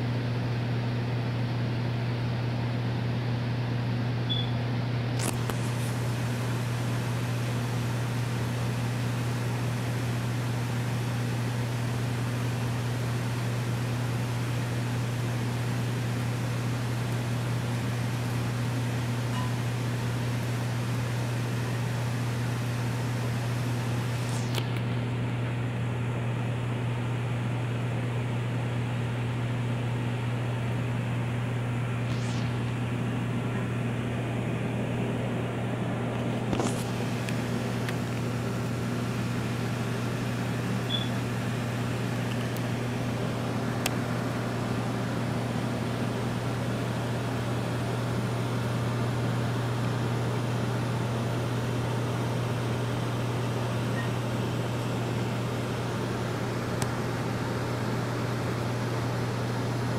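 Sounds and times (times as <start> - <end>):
aquarium pumps humming: 0.0 - 59.9.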